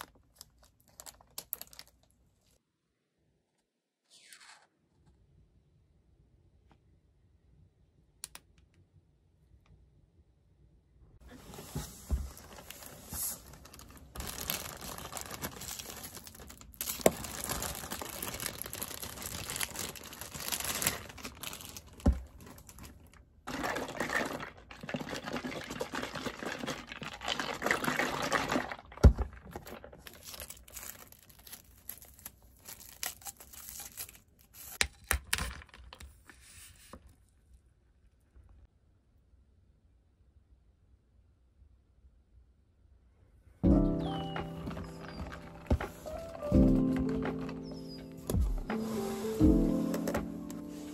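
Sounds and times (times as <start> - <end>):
plastic packaging crinkling and tearing: 0.0 - 2.6, 11.6 - 35.0, 44.1 - 50.9.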